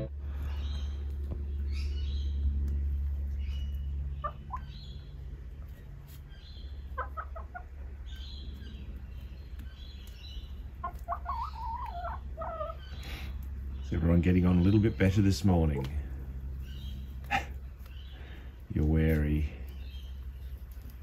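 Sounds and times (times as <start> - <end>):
birds chirping faintly: 0.0 - 21.0
low hum: 0.0 - 21.0
hens clucking: 2.6 - 19.3.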